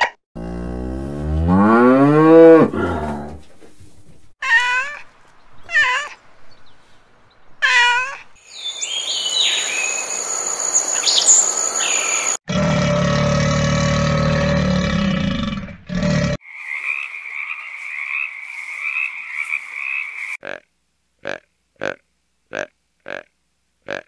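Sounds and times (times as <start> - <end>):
cow mooing: 0.4 - 3.4
high chirps: 8.4 - 12.4.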